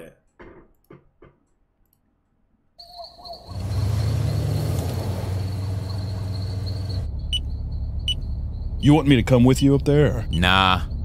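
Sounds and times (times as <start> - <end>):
crickets chirping: 2.8 - 11.0
car engine rumble: 3.4 - 11.0.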